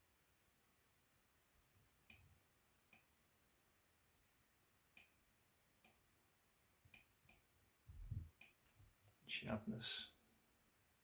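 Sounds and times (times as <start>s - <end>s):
faint computer mouse clicks: 6.9s - 7.4s.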